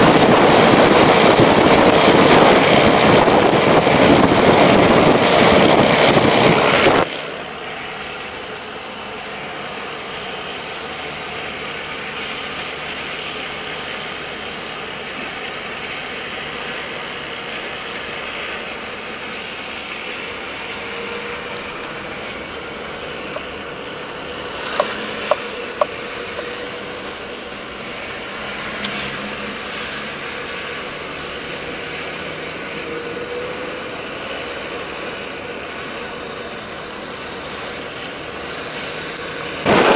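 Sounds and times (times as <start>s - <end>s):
wind rushing over microphone: 0.0s - 7.5s, 39.6s - 39.9s
car engine and tyre hum: 0.0s - 39.9s.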